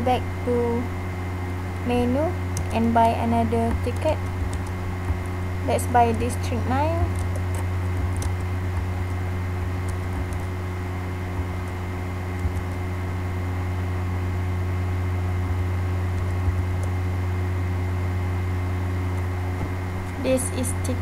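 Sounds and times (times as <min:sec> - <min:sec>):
electrical hum: 0:00.0 - 0:21.0
computer keys clicking: 0:02.5 - 0:02.8, 0:03.7 - 0:05.3, 0:07.0 - 0:10.5, 0:11.4 - 0:12.8, 0:16.1 - 0:16.9.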